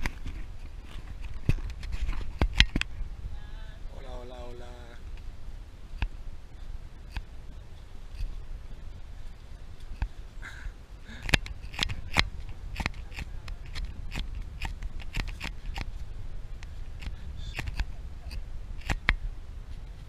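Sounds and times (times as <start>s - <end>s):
trekking poles clicking on stone: 0.0s - 2.9s, 11.1s - 20.0s.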